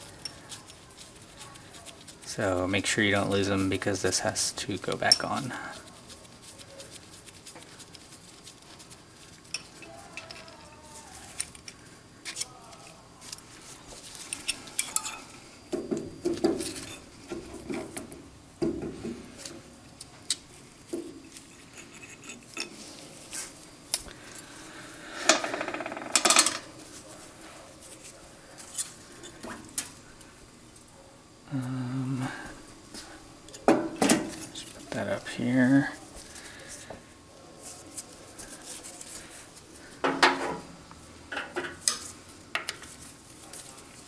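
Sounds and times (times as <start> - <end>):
metal clinks and clanks of tools: 14.3 - 15.4.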